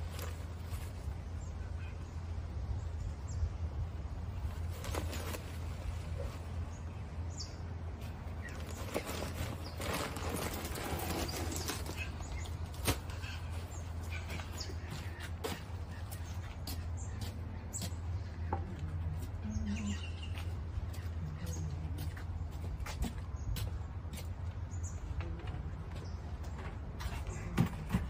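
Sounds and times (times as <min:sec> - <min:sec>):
paper bag rustling: 0:04.4 - 0:06.6, 0:08.0 - 0:13.7
scrapes: 0:08.0 - 0:16.0.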